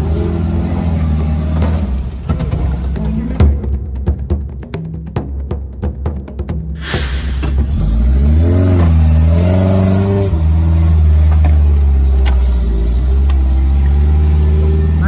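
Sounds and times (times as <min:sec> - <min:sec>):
engine revving: 0:06.8 - 0:15.0.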